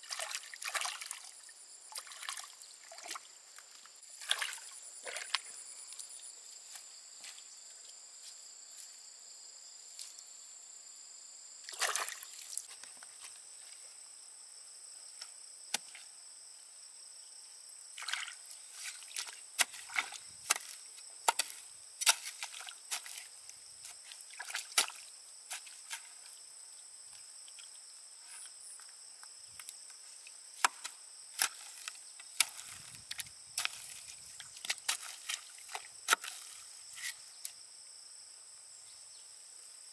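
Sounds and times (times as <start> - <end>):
splashes and knocks: 0.0 - 3.3, 4.1 - 5.5, 11.7 - 12.9, 18.0 - 26.3, 30.6 - 36.6
water and mud sloshing: 0.0 - 5.6, 11.7 - 12.8, 18.0 - 26.4, 30.6 - 37.2
insects droning: 0.0 - 39.9.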